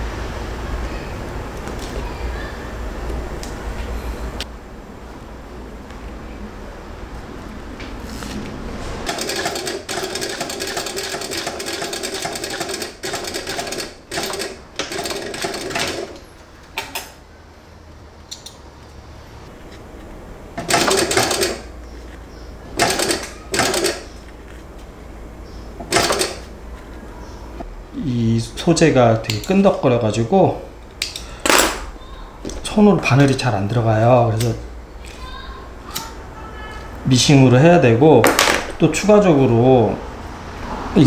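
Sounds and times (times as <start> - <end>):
sewing machine stitching: 9.1 - 16.2, 20.6 - 21.7, 22.7 - 24.1, 25.8 - 26.5.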